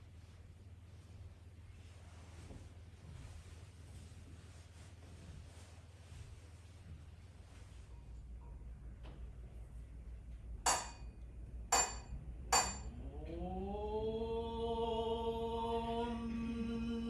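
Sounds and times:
sharp ringing strikes: 0:10.7 - 0:11.1, 0:11.7 - 0:12.9.

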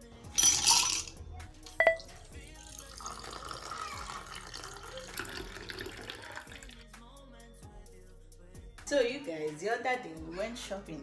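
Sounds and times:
clink on glass: 0:00.4 - 0:01.1, 0:01.8 - 0:02.1
drink pouring over ice: 0:00.4 - 0:01.1, 0:01.9 - 0:06.8
ice cubes clattering into glass: 0:00.4 - 0:01.1.

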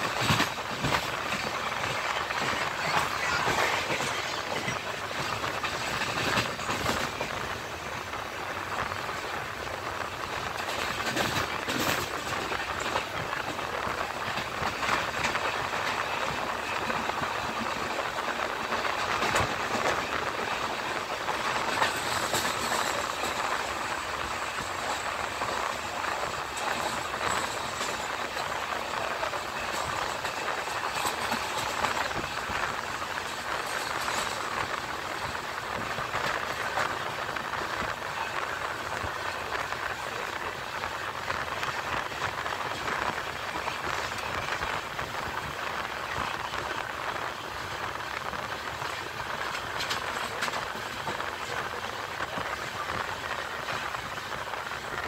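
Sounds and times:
train rushing rumble: 0:00.0 - 0:55.0
wheels clacking over rails: 0:00.0 - 0:55.0.

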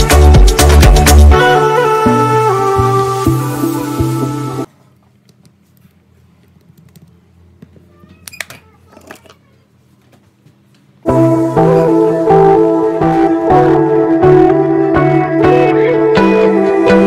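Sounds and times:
background music: 0:00.0 - 0:04.7, 0:11.1 - 0:17.0.

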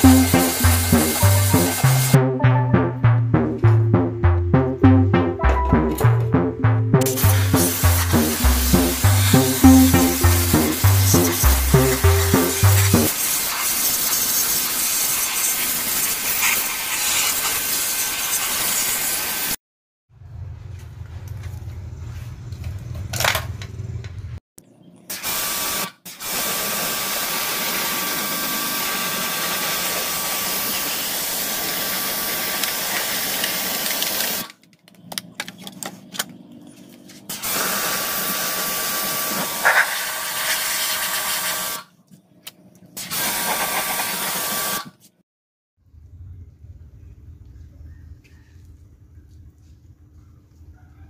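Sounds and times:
pressure washer spraying water: 0:00.0 - 0:02.2, 0:07.1 - 0:19.6, 0:37.4 - 0:41.6
low hum: 0:00.0 - 0:13.1.

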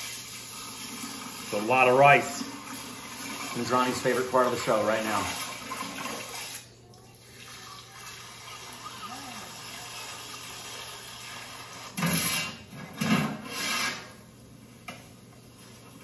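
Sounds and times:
metal cooking pots scraping: 0:11.4 - 0:14.2.

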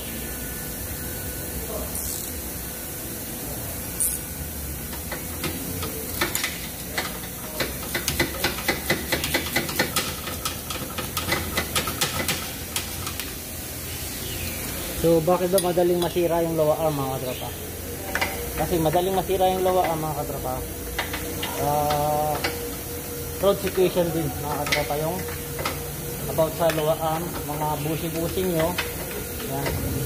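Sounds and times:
steady background hiss: 0:00.0 - 0:30.0
ratchet clicking: 0:04.9 - 0:13.4, 0:23.5 - 0:29.9.

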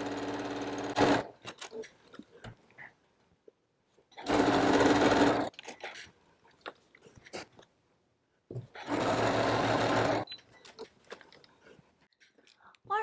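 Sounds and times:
sewing machine stitching: 0:00.0 - 0:01.5, 0:04.2 - 0:05.6, 0:08.7 - 0:10.4.

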